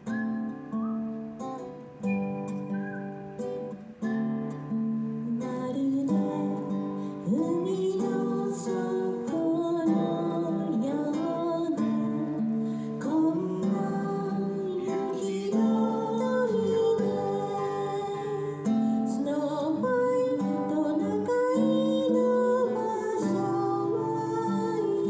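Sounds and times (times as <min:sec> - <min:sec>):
acoustic guitar strumming: 0:00.0 - 0:25.0
person singing: 0:05.2 - 0:25.0.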